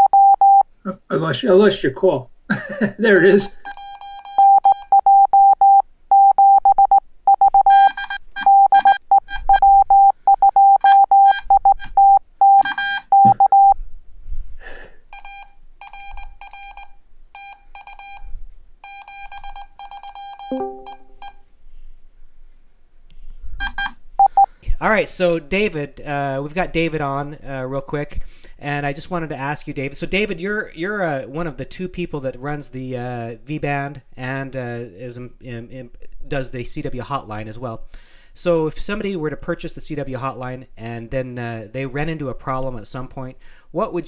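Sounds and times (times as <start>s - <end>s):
morse code beeping: 0.0s - 0.7s, 3.2s - 13.8s, 15.2s - 18.2s, 18.8s - 21.4s, 23.6s - 24.5s.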